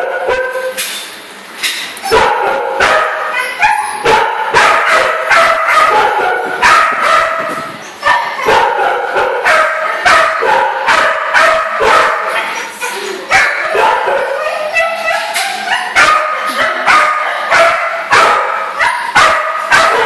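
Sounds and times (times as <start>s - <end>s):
dog whining and yipping: 3.4s - 4.0s, 14.2s - 16.0s.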